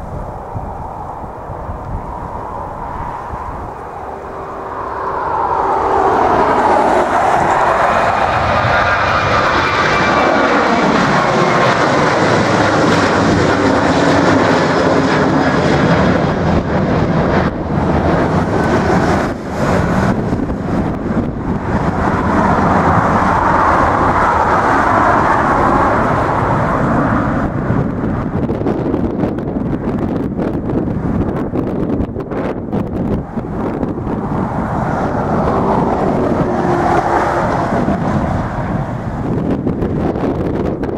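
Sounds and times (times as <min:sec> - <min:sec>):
faint high whine: 0:00.0 - 0:11.6
jet engines at takeoff thrust: 0:00.0 - 0:40.9.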